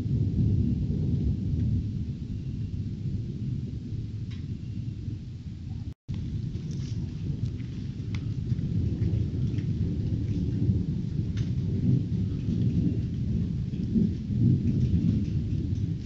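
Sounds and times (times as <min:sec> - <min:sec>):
thunder rumbling: 0:00.0 - 0:16.0
raindrop ticks: 0:06.1 - 0:16.0.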